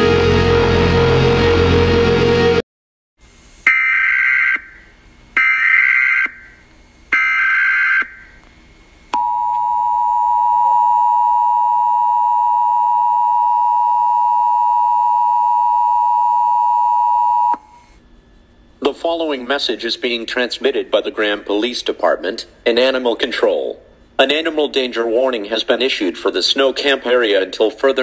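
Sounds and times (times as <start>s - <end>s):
two-tone attention signal: 9.2s - 17.7s.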